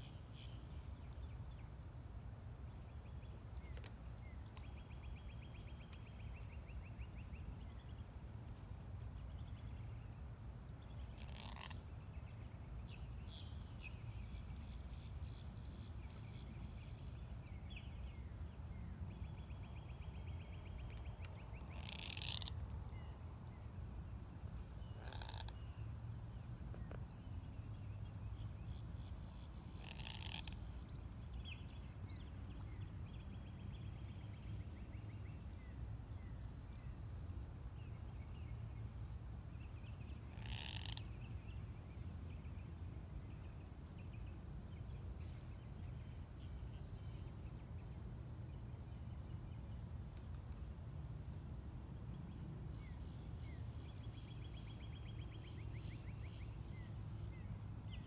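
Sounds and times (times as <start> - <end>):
frogs calling: 10.8 - 12.4, 19.2 - 23.4, 24.6 - 27.0, 28.6 - 31.9, 39.6 - 41.6.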